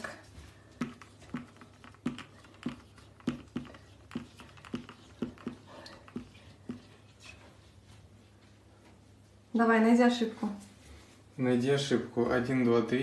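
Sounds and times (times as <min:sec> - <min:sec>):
marker tapping on glass: 0:00.8 - 0:06.9.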